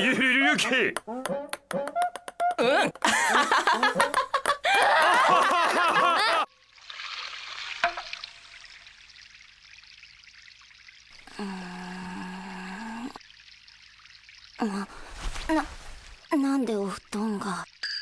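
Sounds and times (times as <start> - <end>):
trickle of running water: 6.5 - 18.0.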